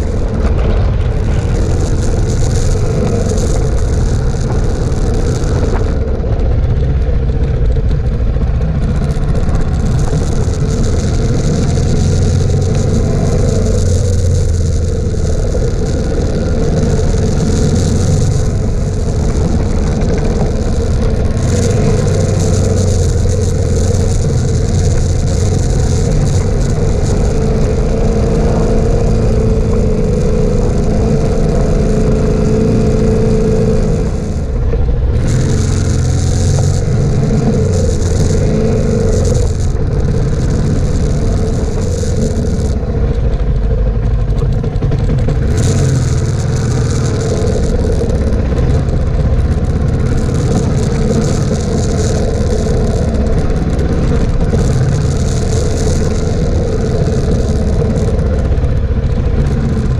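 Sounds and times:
wind hiss: 0.0s - 44.0s
motorcycle engine running: 0.0s - 59.9s.

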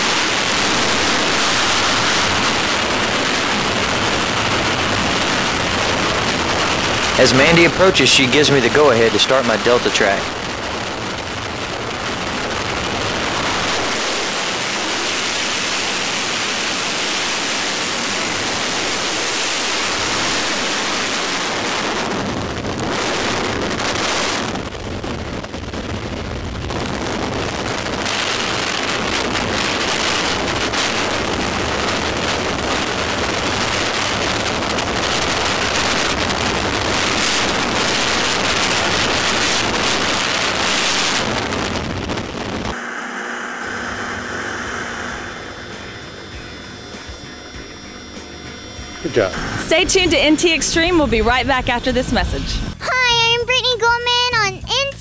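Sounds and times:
wind roaring over microphone: 0.0s - 47.8s.

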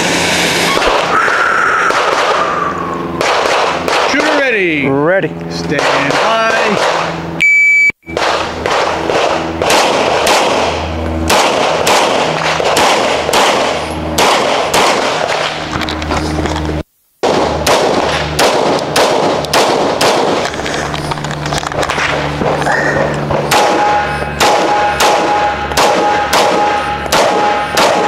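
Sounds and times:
rapid pistol fire: 0.8s - 4.7s, 5.7s - 7.2s, 8.1s - 15.6s, 17.2s - 20.8s, 21.8s - 28.0s
shot timer beep: 7.4s - 8.2s.

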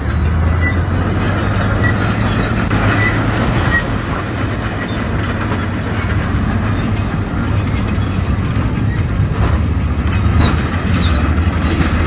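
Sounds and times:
bulldozer diesel engine running: 0.0s - 12.0s
steel tracks squeaking: 0.0s - 12.0s.

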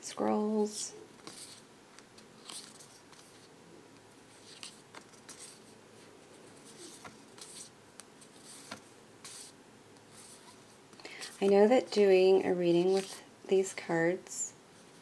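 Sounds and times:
cards sliding papery swishes: 1.2s - 1.6s, 2.4s - 3.5s, 4.3s - 5.7s, 6.5s - 11.6s, 12.9s - 13.2s.

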